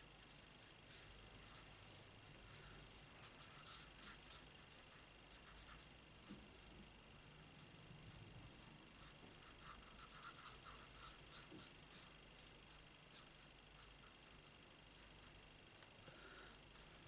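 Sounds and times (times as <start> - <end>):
marker scratching on cardstock: 3.2 - 6.4, 8.6 - 15.4.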